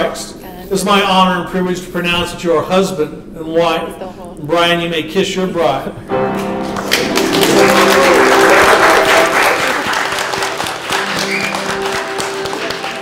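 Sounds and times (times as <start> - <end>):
music with long held notes: 6.1 - 13.0
people applauding: 6.4 - 13.0.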